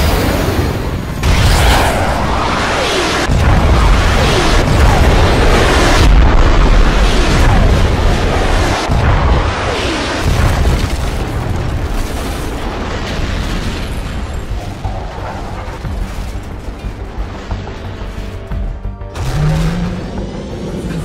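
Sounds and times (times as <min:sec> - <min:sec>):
large explosions: 0:00.0 - 0:18.2.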